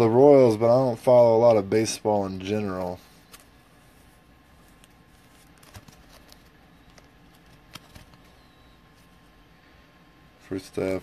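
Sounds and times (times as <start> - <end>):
trading cards rustling: 2.4 - 9.4.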